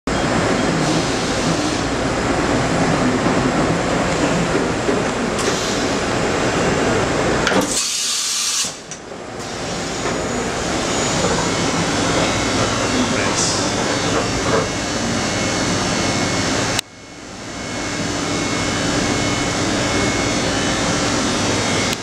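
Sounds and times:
machinery humming and hissing: 0.1 - 22.0
sharp high air blast hiss: 7.7 - 8.9.

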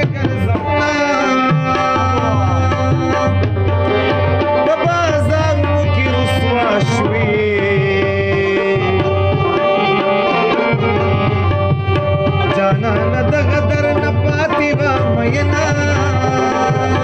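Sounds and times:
hand drum beat: 0.0 - 17.0.

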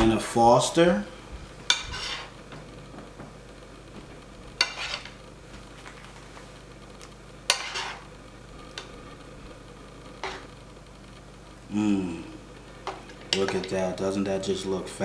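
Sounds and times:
spoon scraping cookware: 1.7 - 2.3, 4.6 - 5.2, 7.5 - 8.0, 10.2 - 10.5.

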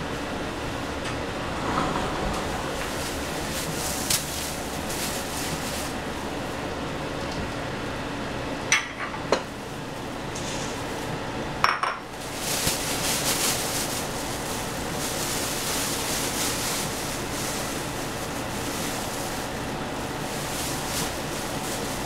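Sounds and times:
plastic bag crinkling: 2.6 - 6.6, 12.1 - 22.0
dishes clinking on tiles: 11.6 - 12.1.

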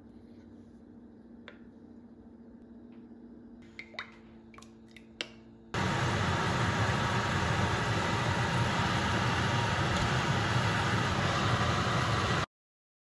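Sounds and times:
hot oil sizzling: 5.8 - 12.4.

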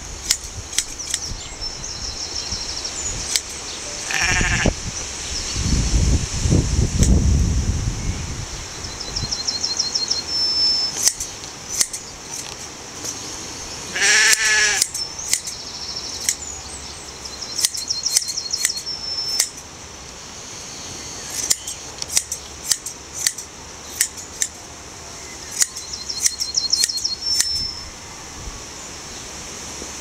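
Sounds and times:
shears snipping fleece: 0.2 - 1.3, 10.9 - 13.4, 14.0 - 15.6, 17.6 - 19.7, 21.2 - 24.6, 25.4 - 27.6.

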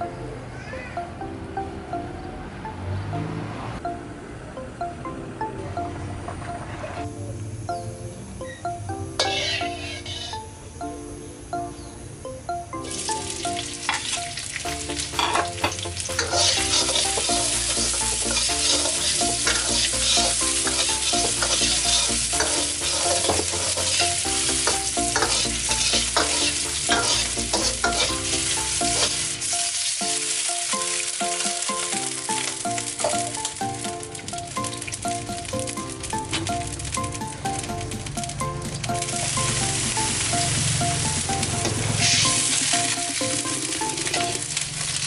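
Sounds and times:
ladle scraping wok: 9.2 - 10.4, 15.2 - 29.2
onion sizzling in hot oil: 9.2 - 10.4, 12.9 - 45.0.

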